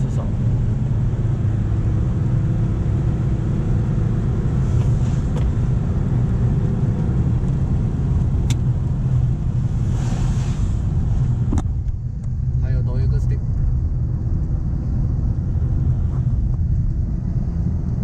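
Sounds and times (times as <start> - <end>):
engine and road noise drone: 0.0 - 18.0
hiss: 9.8 - 10.8.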